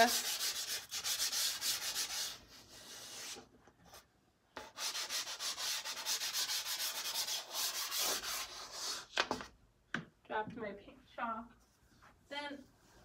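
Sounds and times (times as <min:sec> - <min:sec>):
pastel stick scratching paper: 0:00.0 - 0:03.4, 0:04.6 - 0:09.1.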